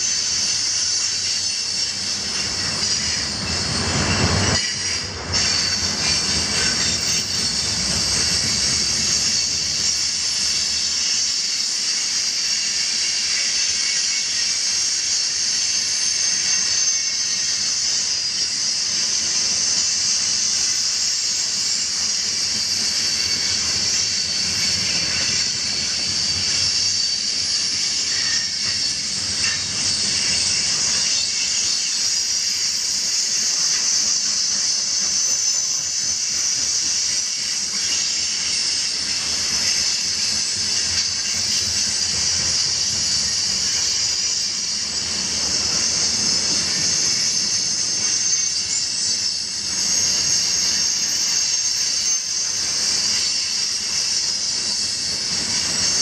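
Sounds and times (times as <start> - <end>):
faint thin wheel squeal: 0.0 - 56.0
train wheels hissing on rail: 0.0 - 56.0.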